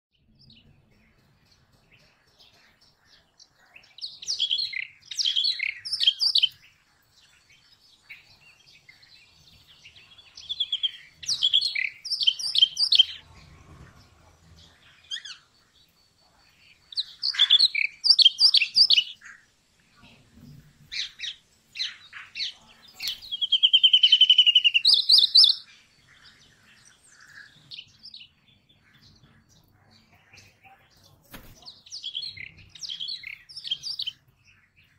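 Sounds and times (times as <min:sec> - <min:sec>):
bird chirping: 0:00.1 - 0:34.9
bird trill: 0:00.2 - 0:19.5, 0:20.9 - 0:34.9.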